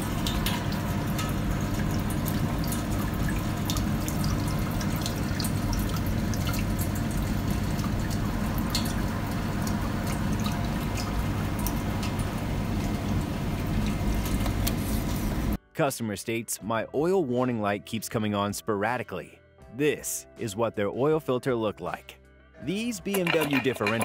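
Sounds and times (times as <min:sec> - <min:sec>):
steady low hum: 0:00.0 - 0:15.6
water pouring and dripping: 0:00.0 - 0:15.6, 0:23.1 - 0:24.0.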